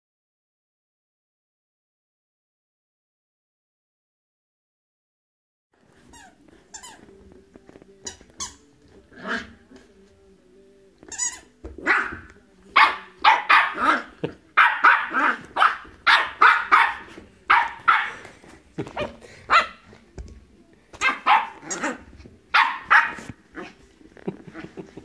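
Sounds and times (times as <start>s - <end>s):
puppy squeaking: 11.1s - 12.2s
high-pitched puppy barks: 11.8s - 18.3s, 19.0s - 19.9s, 21.0s - 23.8s.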